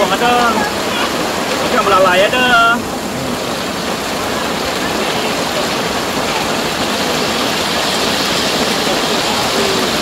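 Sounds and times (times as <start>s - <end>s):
fish sizzling in hot oil: 4.9s - 10.0s.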